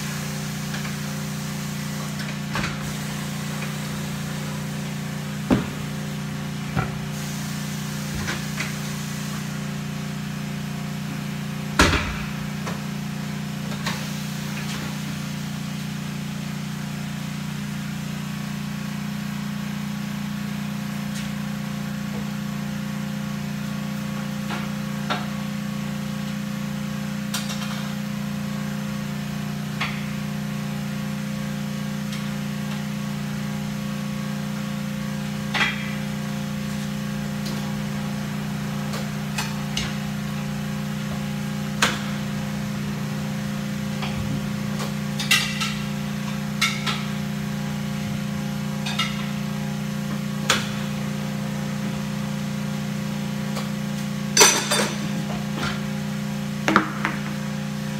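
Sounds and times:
low machine hum: 0.0s - 57.9s
tools knocking on tire-changing machine: 56.6s - 57.4s.

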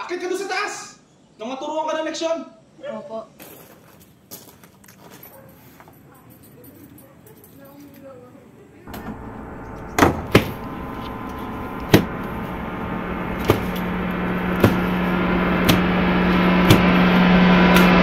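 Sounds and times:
low steady hum: 8.9s - 18.0s
noisy drone: 8.9s - 18.0s
sharp strikes: 8.9s - 18.0s.

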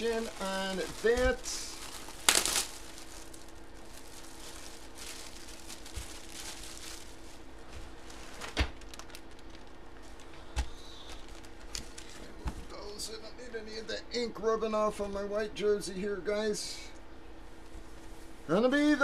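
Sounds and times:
plastic bag rustling: 0.0s - 12.7s
steady low hum: 0.0s - 19.0s.

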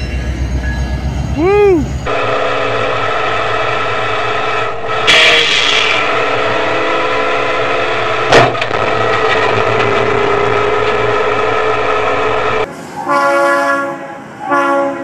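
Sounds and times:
train horn: 5.0s - 8.0s, 13.0s - 15.0s
train crashing into vehicle: 8.2s - 12.5s.

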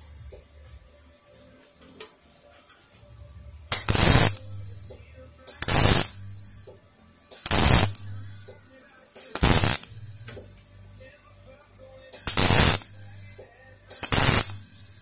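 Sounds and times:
welder arc crackling: 3.7s - 11.2s, 12.1s - 15.0s.

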